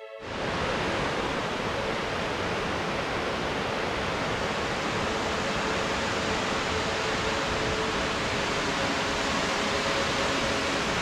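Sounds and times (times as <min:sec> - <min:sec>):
rushing river water: 0:00.2 - 0:11.0.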